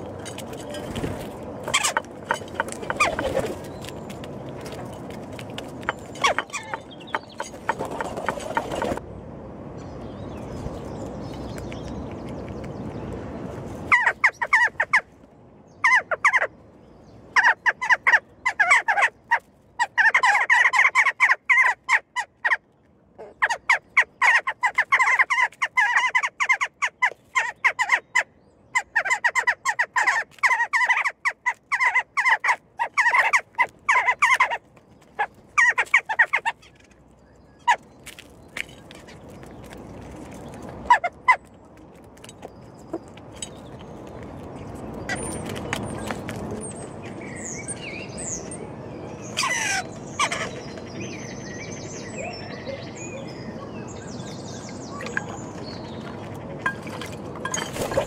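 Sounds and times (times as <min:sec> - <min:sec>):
beaks pecking at a dish: 0:00.0 - 0:09.0, 0:28.8 - 0:37.0.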